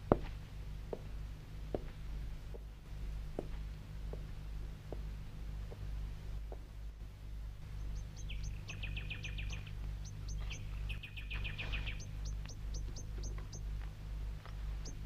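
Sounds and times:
steady low hum: 0.0 - 15.0
small birds chirping: 7.3 - 15.0.

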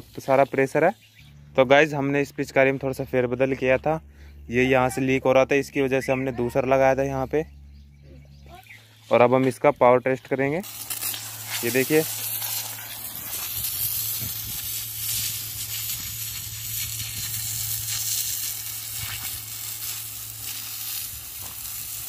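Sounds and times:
water jet spattering on dirt: 10.6 - 22.0.

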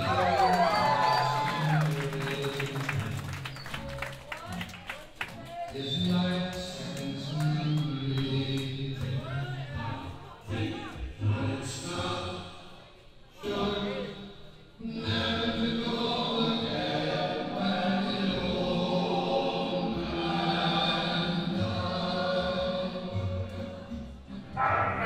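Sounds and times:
band playing drawn-out chant-like tones: 24.4 - 25.0.

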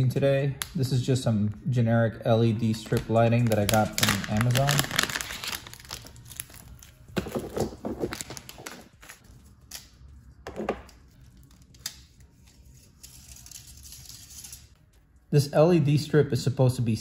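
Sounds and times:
plastic bag crinkling: 2.7 - 9.2.

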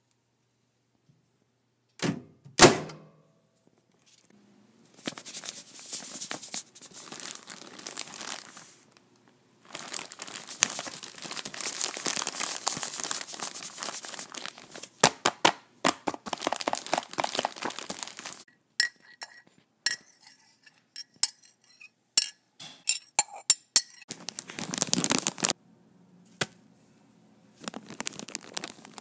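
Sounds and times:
packaging crinkling and rustling: 4.9 - 9.0, 9.6 - 15.0, 15.9 - 18.5, 24.1 - 25.6, 27.6 - 29.0.

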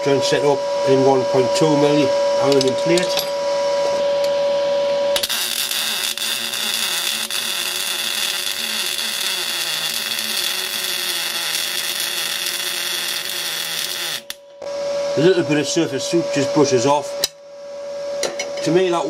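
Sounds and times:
arc welding: 5.2 - 14.4.

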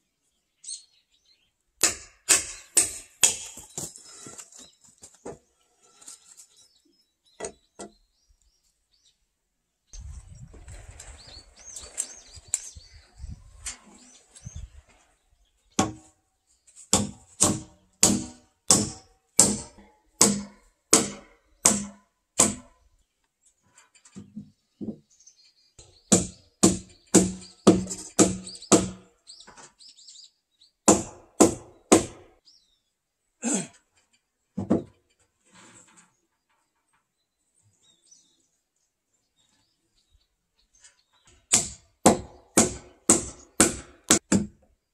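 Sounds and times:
hammer striking nails into wood: 1.8 - 3.6, 16.9 - 22.7, 26.1 - 29.0, 30.9 - 32.3, 41.5 - 44.6.

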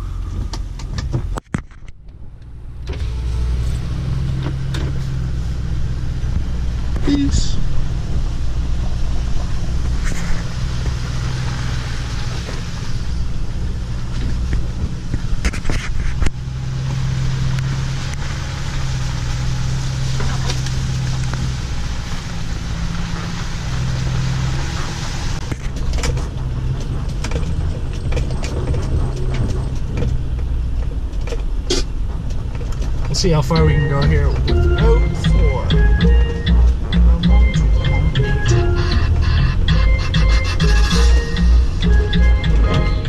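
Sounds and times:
diesel engine running: 0.0 - 43.0
tyre rolling noise: 25.4 - 33.3.

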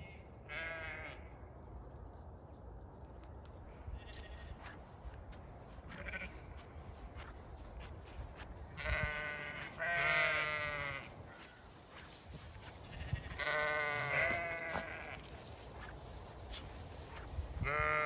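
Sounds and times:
sheep bleating: 0.0 - 1.3, 5.9 - 6.6, 8.8 - 11.5, 12.8 - 15.3, 17.6 - 18.0.

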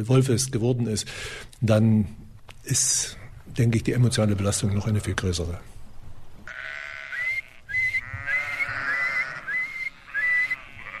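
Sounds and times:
sheep bleating: 6.5 - 11.0
person whistling: 7.2 - 10.6.

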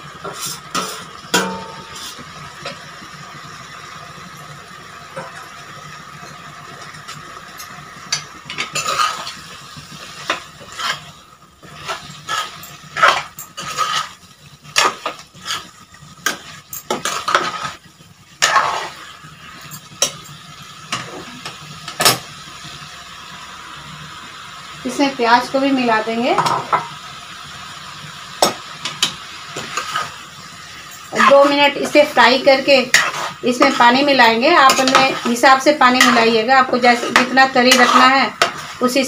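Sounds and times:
metal spoon scraping a pan: 0.2 - 2.8, 7.6 - 9.4, 10.0 - 17.8, 18.4 - 20.3, 28.8 - 30.2, 30.8 - 39.0.

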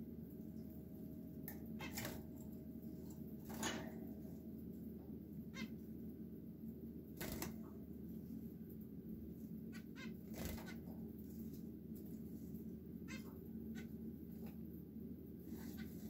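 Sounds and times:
steady low hum: 0.0 - 16.0
finches calling: 5.5 - 5.8, 9.7 - 10.8.

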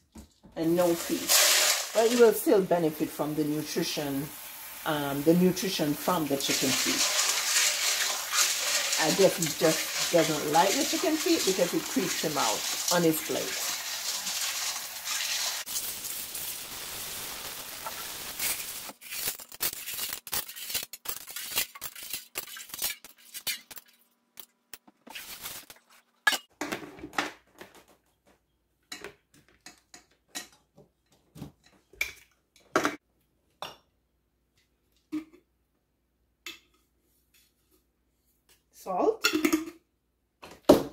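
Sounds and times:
tap water running into steel bowl: 6.4 - 15.7.

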